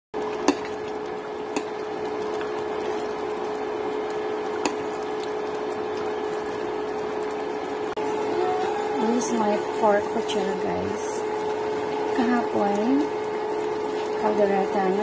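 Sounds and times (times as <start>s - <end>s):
constant hum: 0.2s - 15.0s
stew bubbling in a pot: 0.2s - 15.0s
ladle clicking against pot: 4.6s - 4.8s.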